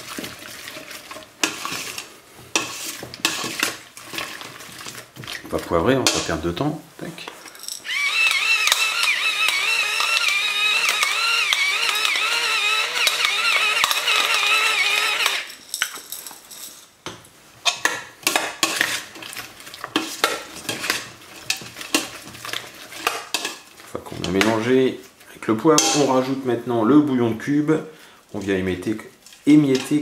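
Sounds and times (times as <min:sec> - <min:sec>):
electric pepper mill whine: 0:07.8 - 0:15.6.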